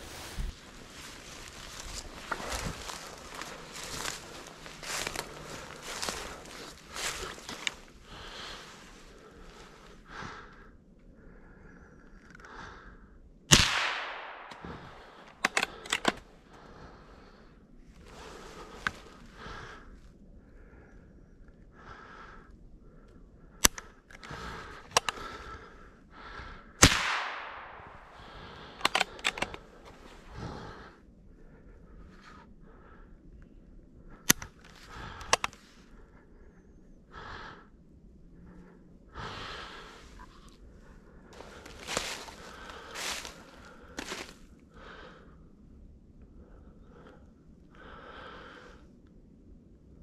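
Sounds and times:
rifle bolt metallic clicks: 0:13.5 - 0:16.2, 0:28.8 - 0:29.6
rifle shots with echo: 0:13.5 - 0:16.2, 0:26.8 - 0:28.2.

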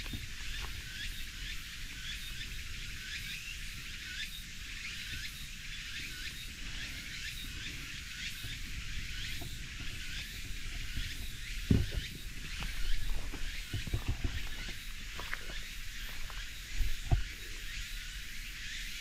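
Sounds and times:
steady low rumble: 0:05.8 - 0:19.0.

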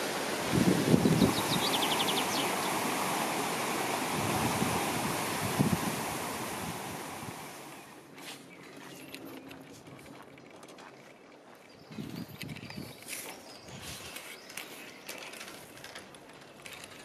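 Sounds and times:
outdoor rushing noise: 0:00.0 - 0:07.8
rising bird trill: 0:01.0 - 0:02.9.

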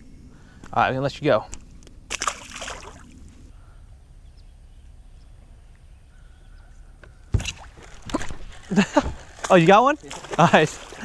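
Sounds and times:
fish splashing into water: 0:02.1 - 0:03.1, 0:07.4 - 0:11.0.

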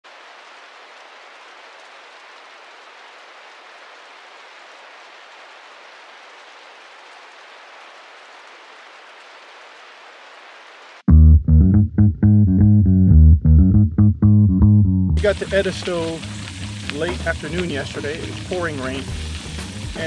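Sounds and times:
steady rain hissing: 0:00.0 - 0:11.1, 0:15.2 - 0:20.0.

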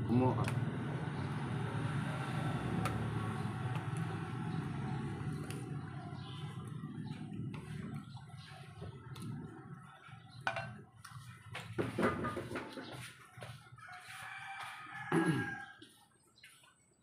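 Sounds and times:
rooster crowing: 0:13.8 - 0:16.0.

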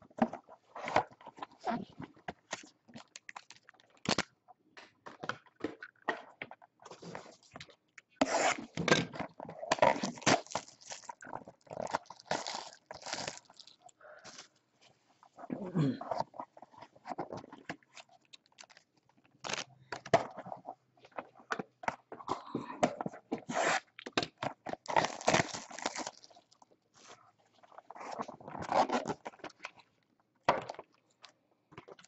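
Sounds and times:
plastic and foil packs crinkling: 0:02.4 - 0:04.4, 0:08.2 - 0:14.6, 0:16.3 - 0:20.6, 0:24.6 - 0:29.8.

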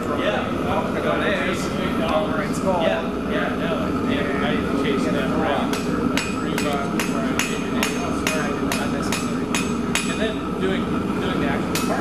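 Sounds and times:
hammer striking iron on anvil: 0:05.7 - 0:10.2, 0:11.7 - 0:12.0.

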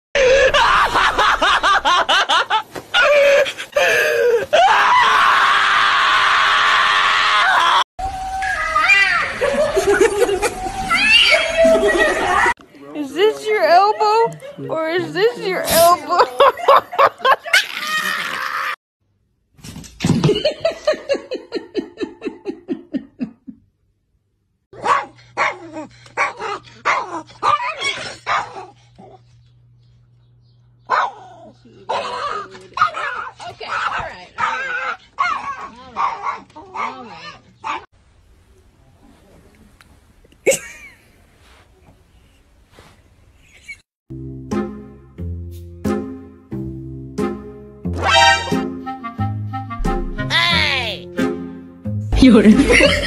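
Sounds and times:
long high cry: 0:04.1 - 0:09.5, 0:10.2 - 0:12.5
small dog yapping: 0:24.8 - 0:29.2, 0:30.9 - 0:37.9
dog yelping squeals: 0:26.9 - 0:28.7.

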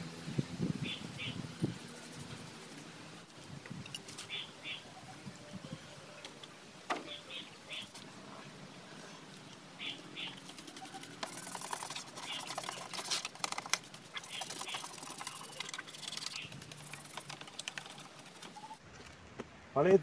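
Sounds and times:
scrubbing scooter body: 0:10.2 - 0:18.8.

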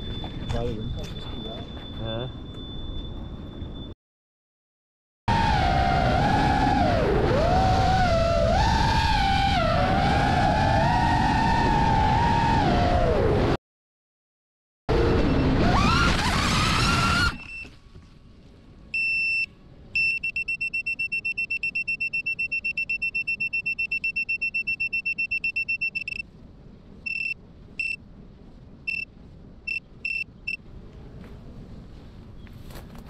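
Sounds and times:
high electronic beeps: 0:19.0 - 0:26.2, 0:27.1 - 0:28.0, 0:28.9 - 0:29.1, 0:29.7 - 0:30.6.

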